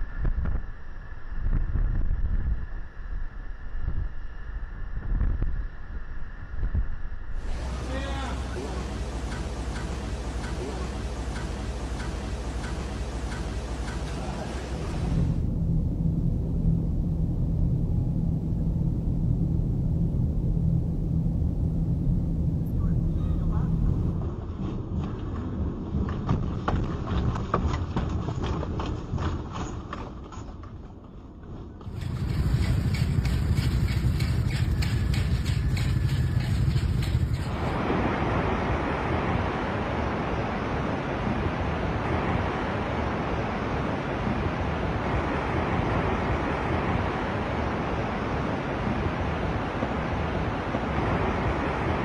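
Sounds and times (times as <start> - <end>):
wind on microphone: 0.0 - 11.8, 31.8 - 52.0
deep rumble of road traffic: 3.2 - 27.1, 31.7 - 52.0
earthquake rumble: 14.1 - 29.8, 30.8 - 40.1.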